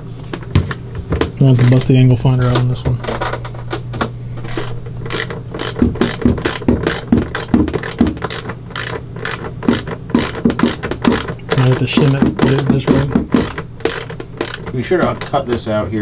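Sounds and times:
ratchet clicking: 4.5s - 14.8s.

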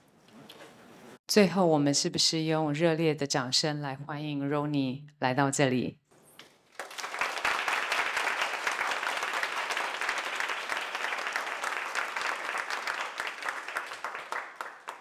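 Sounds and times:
audience applauding: 6.7s - 15.0s.

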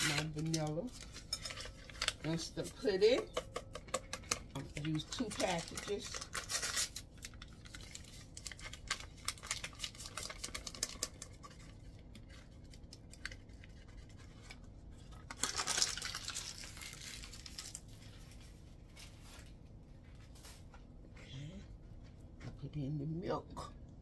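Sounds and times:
paper pouches crinkling: 0.0s - 3.2s, 4.4s - 19.6s
paper tearing: 5.2s - 11.0s.

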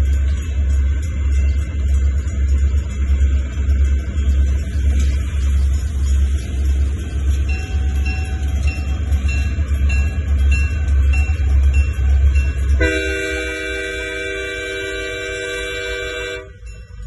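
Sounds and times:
railroad crossing bell dinging: 0.0s - 17.0s
locomotive horn chord: 12.8s - 16.7s.

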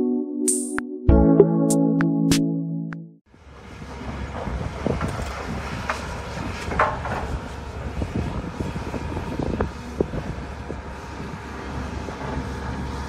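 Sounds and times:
wind rumbling on microphone: 3.6s - 13.0s.

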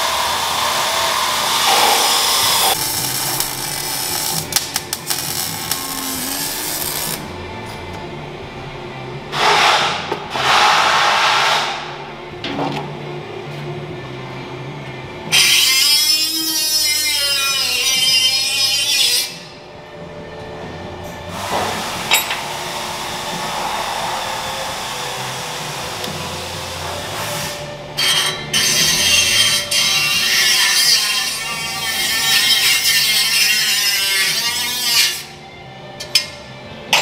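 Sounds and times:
shrill whining power tool: 0.0s - 7.2s
cut-off wheel grinding metal: 0.0s - 7.3s, 21.9s - 35.3s.

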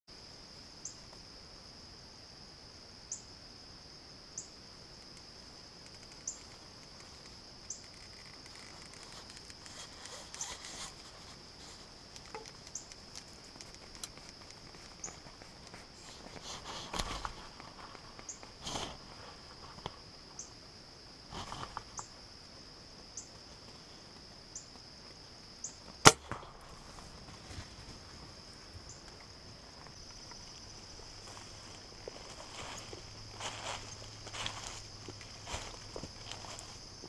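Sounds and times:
insects droning: 0.1s - 37.0s
rustling in dry leaves: 6.1s - 19.8s, 29.5s - 37.0s.

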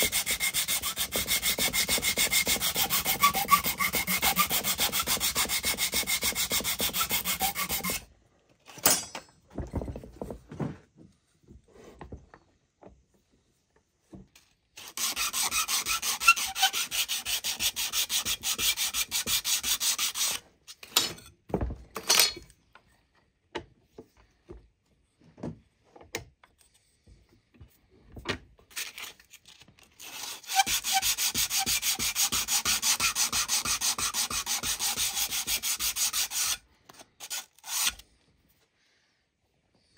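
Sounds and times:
sandpaper rubbing on wood: 0.0s - 8.0s, 14.8s - 20.4s, 30.0s - 36.6s, 37.2s - 38.0s.

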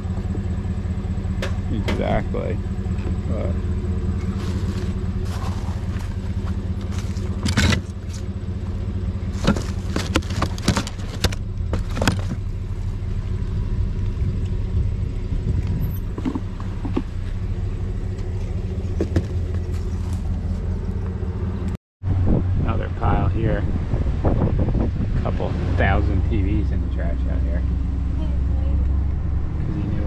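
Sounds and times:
vehicle engine idling: 0.0s - 30.0s
objects knocking and clattering: 9.4s - 12.4s.

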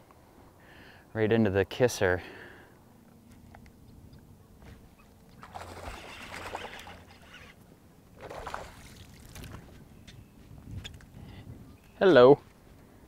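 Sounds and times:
fish thrashing and splashing: 5.4s - 7.6s, 8.2s - 9.6s.

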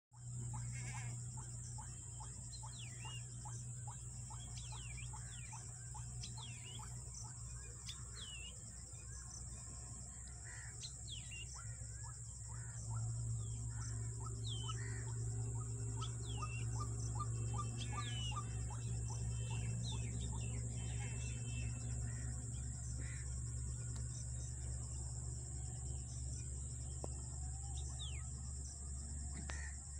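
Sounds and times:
low steady hum: 0.2s - 29.9s
short chirping calls: 0.5s - 8.6s, 10.8s - 21.9s.

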